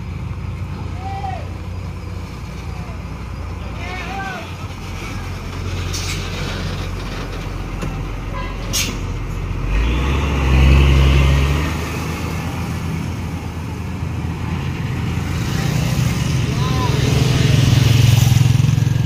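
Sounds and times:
diesel truck engine driving past: 0.0s - 19.0s.

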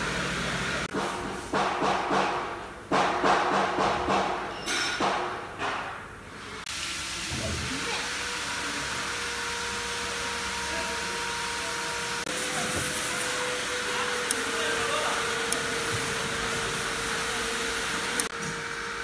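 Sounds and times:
motor whine: 7.8s - 19.0s.

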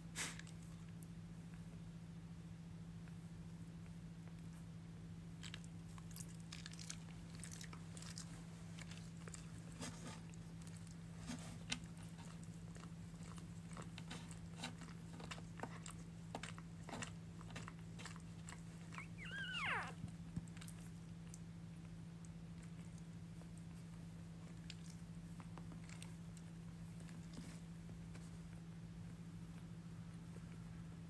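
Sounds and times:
steady low hum: 0.0s - 31.0s
puppies making wet clicks: 0.2s - 31.0s
puppy squeaking: 18.9s - 20.1s.

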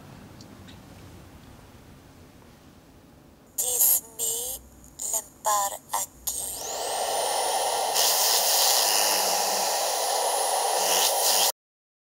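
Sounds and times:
static-like hiss: 3.3s - 11.6s.

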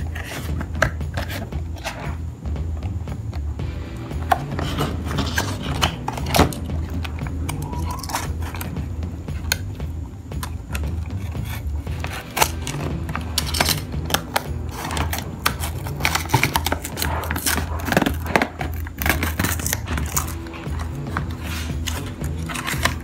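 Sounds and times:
plastic blister packaging crackling: 10.7s - 23.0s.

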